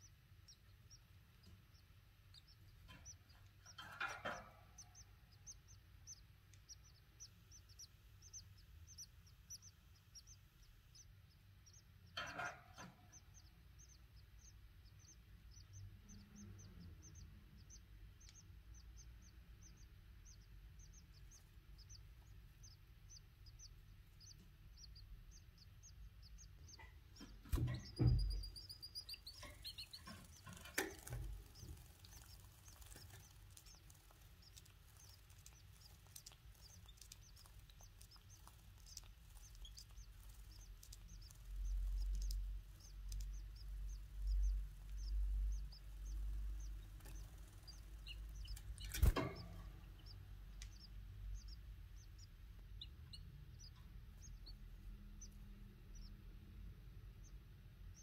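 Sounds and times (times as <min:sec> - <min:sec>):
chicks cheeping: 0:00.0 - 0:58.0
bird rustling in nest: 0:29.4 - 0:41.0, 0:48.5 - 0:49.8.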